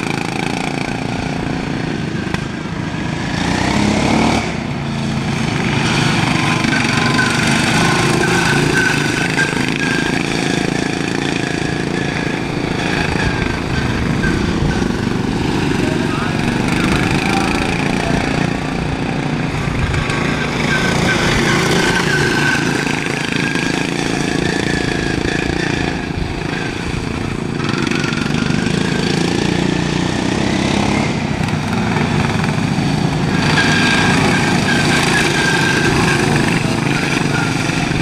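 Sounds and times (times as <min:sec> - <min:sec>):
lawn mower engines racing: 0:00.0 - 0:38.0.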